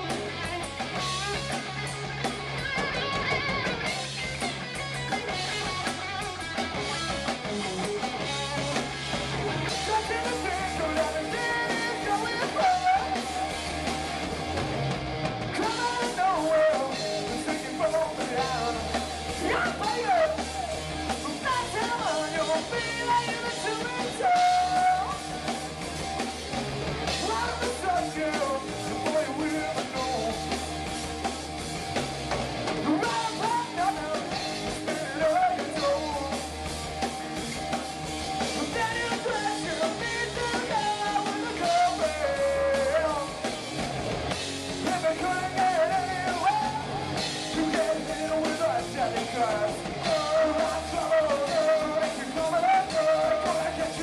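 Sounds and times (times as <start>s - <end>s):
drum kit: 0.0s - 54.0s
electric guitars: 0.0s - 54.0s
lead vocals singing: 9.4s - 13.8s, 15.5s - 25.5s, 27.1s - 30.6s, 32.8s - 36.5s, 38.5s - 43.6s, 44.8s - 54.0s.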